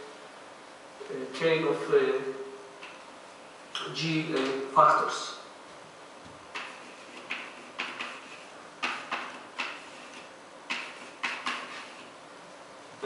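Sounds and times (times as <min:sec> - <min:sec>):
chalk writing on blackboard: 0:06.5 - 0:12.1.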